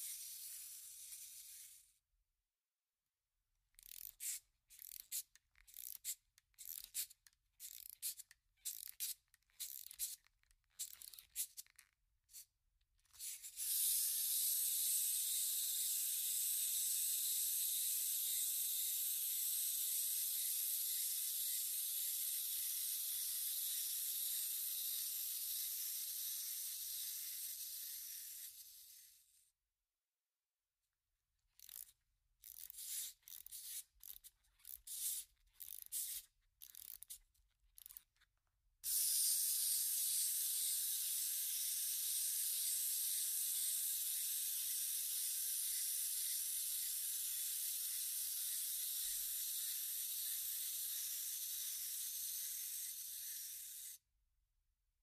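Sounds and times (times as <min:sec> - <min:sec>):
clockwork key winding: 0:03.7 - 0:12.0, 0:31.6 - 0:38.2
clockwork whirring: 0:13.3 - 0:28.9, 0:38.9 - 0:54.0.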